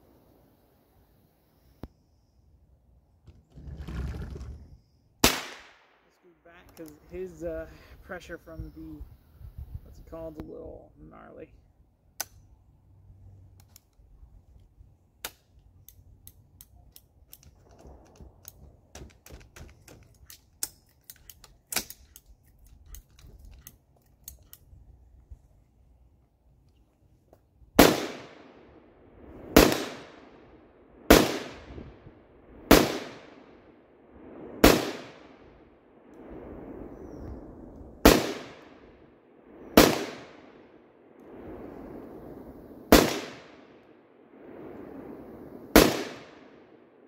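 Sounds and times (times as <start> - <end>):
rifle shots with echo: 5.2 - 6.0, 27.8 - 28.7, 29.5 - 32.1, 32.7 - 33.7, 34.6 - 35.6, 38.0 - 39.0, 39.7 - 40.9, 42.9 - 43.8, 45.7 - 47.0.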